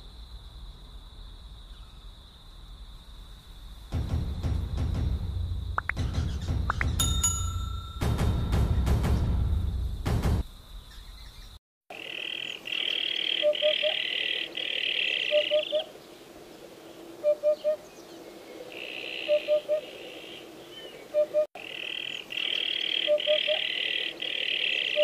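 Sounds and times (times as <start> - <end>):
bird hooting song: 10.9 - 16.0, 17.2 - 25.0.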